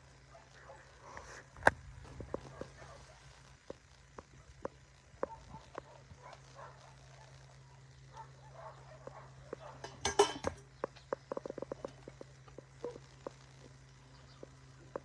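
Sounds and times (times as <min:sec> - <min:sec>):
crunching and clatter: 0:01.1 - 0:15.0.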